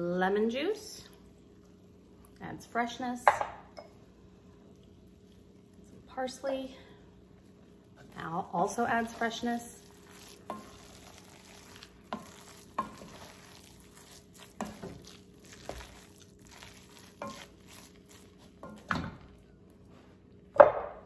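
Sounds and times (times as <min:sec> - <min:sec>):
spoon stirring thick food: 0:07.3 - 0:19.5.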